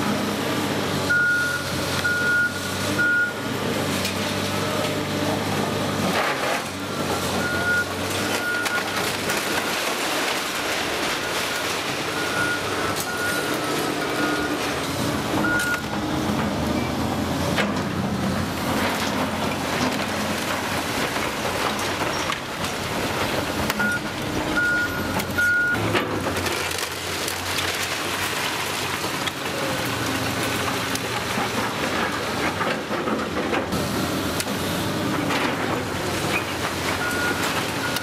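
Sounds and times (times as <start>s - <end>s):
excavator running: 0.0s - 38.0s
bricks and rubble crashing down: 6.1s - 14.8s, 18.7s - 33.8s.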